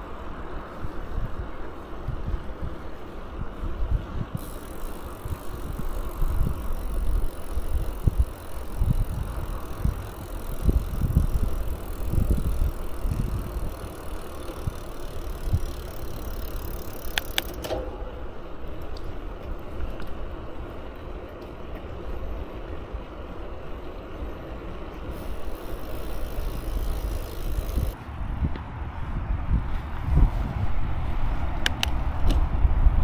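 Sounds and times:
wind buffeting microphone: 0.0s - 17.6s, 25.0s - 33.0s
bicycle rolling: 0.0s - 33.0s
steady high hiss: 4.4s - 17.6s, 25.0s - 28.0s
sharp clicks: 13.1s - 17.8s.

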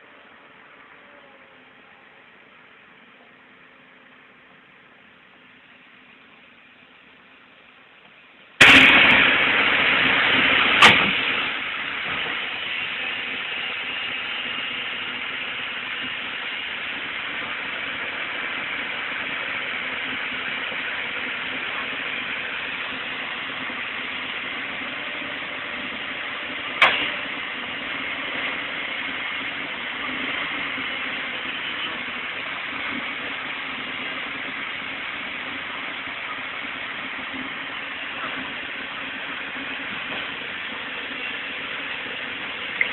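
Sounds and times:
diesel engine running: 8.6s - 42.9s.

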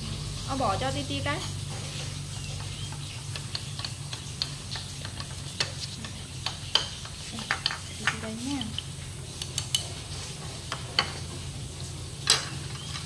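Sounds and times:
chopsticks against bowls: 1.1s - 11.5s.

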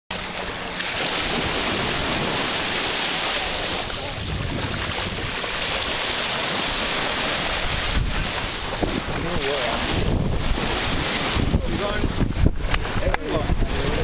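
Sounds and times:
wind buffeting microphone: 3.8s - 14.0s.

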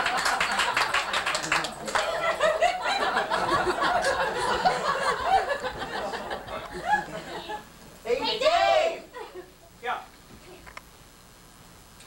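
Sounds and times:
audience laughing: 0.0s - 7.6s.

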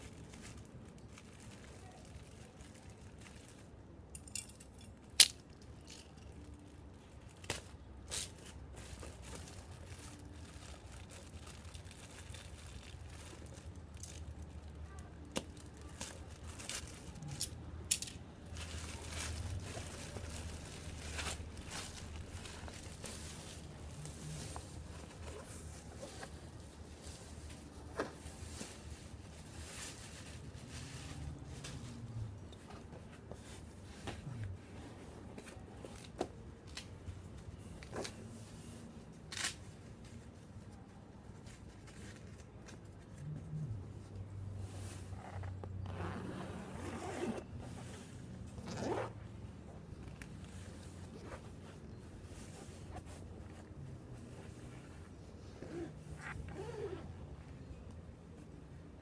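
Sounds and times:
plastic wrapping crinkling: 0.0s - 4.0s, 4.9s - 32.1s
fabric case rustling and scraping: 18.6s - 31.9s, 44.6s - 57.6s.

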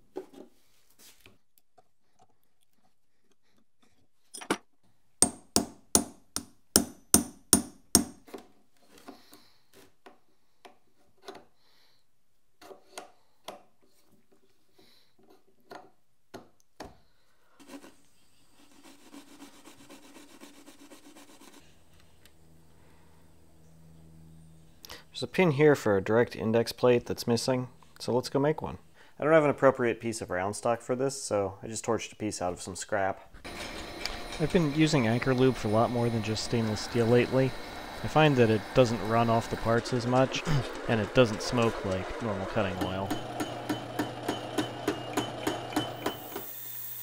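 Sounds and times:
metal part rubbed on abrasive pad: 33.4s - 43.2s.

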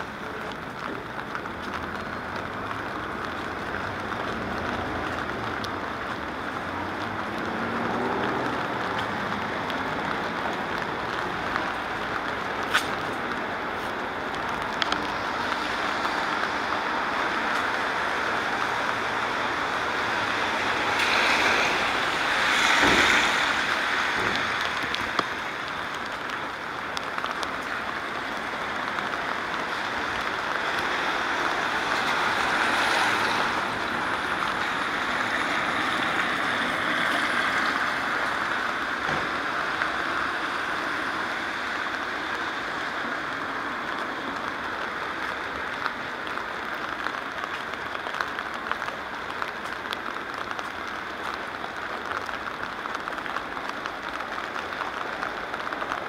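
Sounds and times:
rain on a wet street: 0.0s - 56.0s.

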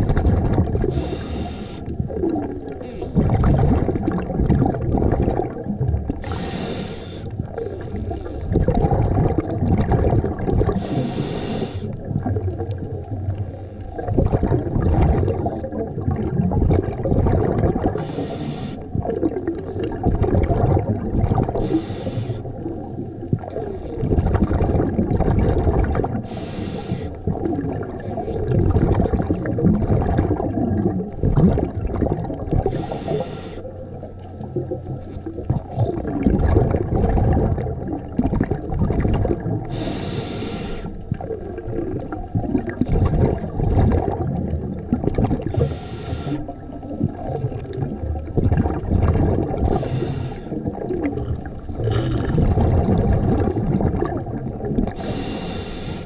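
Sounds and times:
bubbling exhalations: 0.0s - 56.0s
hissing regulator inhalations: 0.9s - 2.0s, 6.2s - 7.4s, 10.8s - 12.0s, 18.0s - 18.9s, 21.6s - 22.6s, 26.2s - 27.2s, 32.6s - 33.7s, 39.6s - 41.1s, 45.5s - 46.6s, 49.7s - 50.8s, 55.0s - 56.0s.

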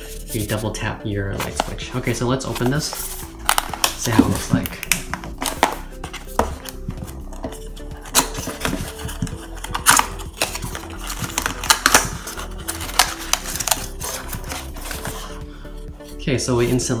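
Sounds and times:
cardboard scraping and rustling: 1.3s - 15.4s
paperboard snapping: 9.6s - 13.8s.

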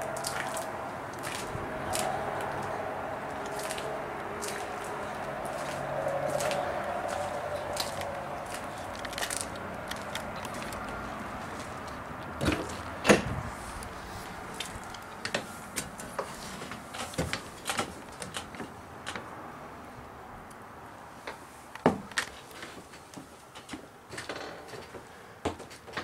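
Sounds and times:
footsteps inside: 0.0s - 17.9s.

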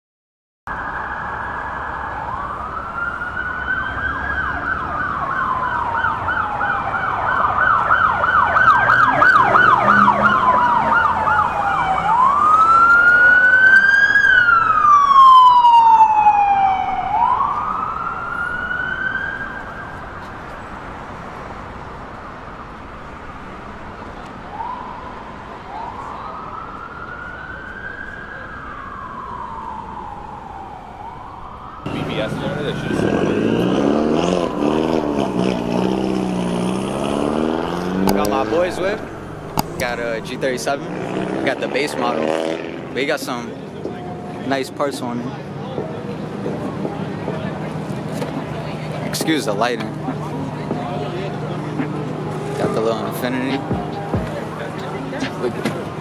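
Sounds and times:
siren yelping: 0.7s - 20.2s, 24.4s - 42.8s, 45.4s - 56.0s
emergency siren wailing: 0.7s - 56.0s.

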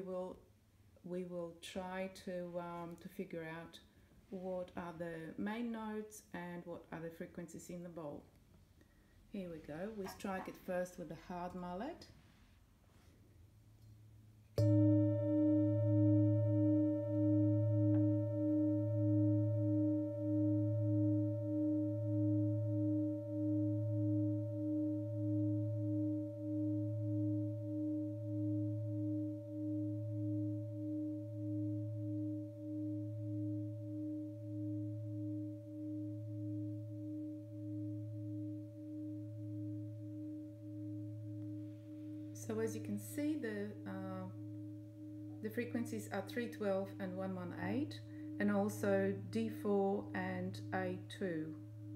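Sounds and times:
singing bowl ringing: 14.6s - 51.9s.

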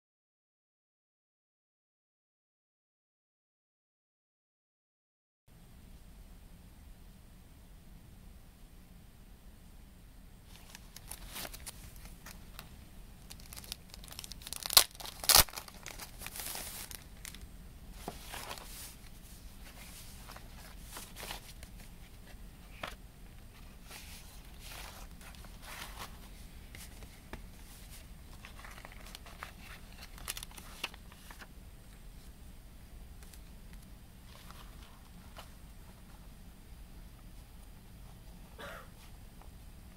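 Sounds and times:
cardboard and paper rustling: 10.5s - 17.4s, 18.0s - 31.5s, 34.2s - 36.2s
plastic crinkling: 10.5s - 17.4s, 27.8s - 31.5s
plastic shrink-wrap tearing: 13.3s - 17.4s, 28.6s - 31.0s.

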